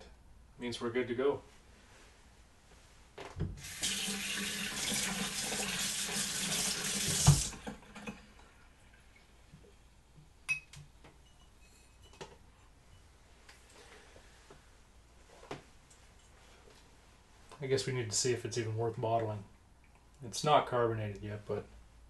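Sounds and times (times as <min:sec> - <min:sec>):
faucet running into a sink: 0:03.6 - 0:08.2.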